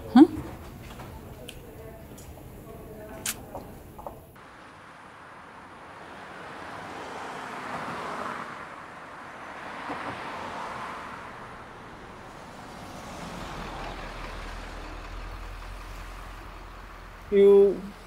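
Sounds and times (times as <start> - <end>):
cars passing: 0.0 - 18.0
low engine rumble: 11.2 - 18.0.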